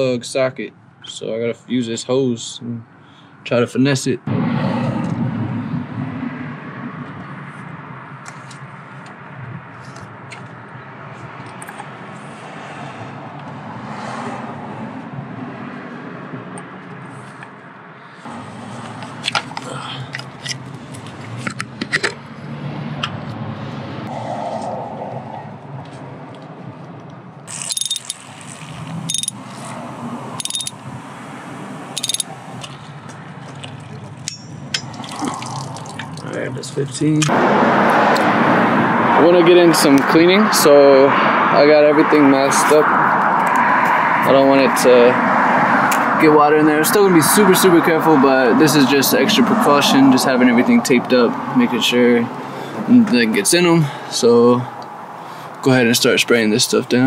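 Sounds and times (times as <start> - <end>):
low outdoor rumble: 4.3 - 9.6
hand ratchet clicking: 27.5 - 29.4, 30.4 - 30.8, 32.0 - 32.8.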